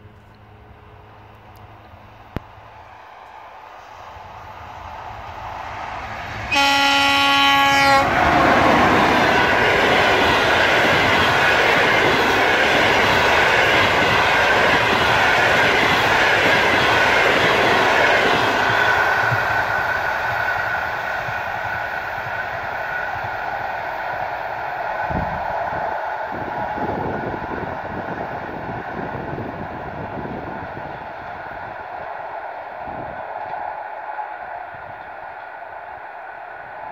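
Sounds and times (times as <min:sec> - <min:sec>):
train horn blast: 0:06.5 - 0:08.6.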